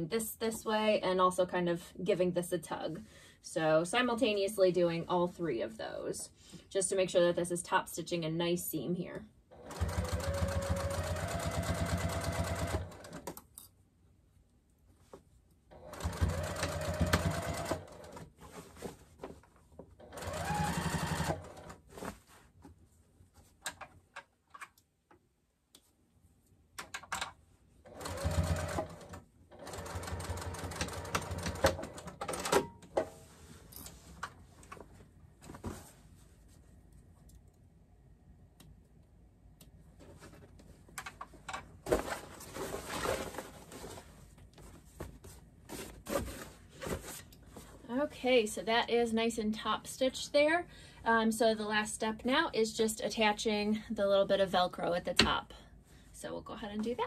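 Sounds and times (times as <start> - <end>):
sewing machine stitching: 9.6 - 13.2, 15.7 - 18.2, 20.0 - 21.8, 27.9 - 32.6.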